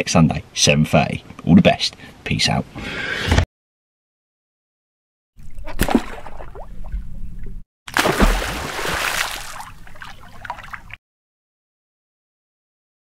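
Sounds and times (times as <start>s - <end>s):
water splashing and trickling: 5.4s - 11.0s.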